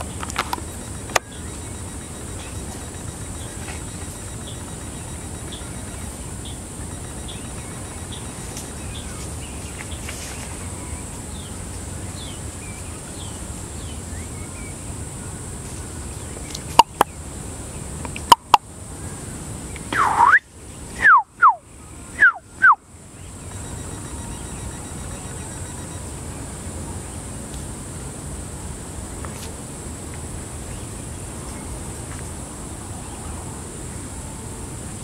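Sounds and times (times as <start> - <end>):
sharp clicks: 0.0 - 6.2
faint high bird chirps: 0.0 - 14.8, 19.8 - 26.0
descending whistled bird notes: 19.9 - 22.8.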